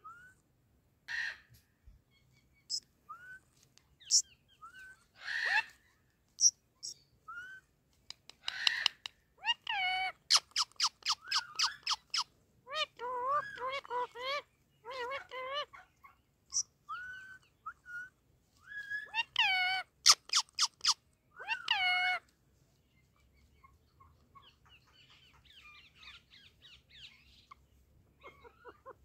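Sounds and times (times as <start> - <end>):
parakeet squeaks and squawks: 4.0 - 5.7, 8.4 - 15.8, 16.5 - 22.2, 28.2 - 29.0
parakeet speech-like chatter: 12.7 - 15.8.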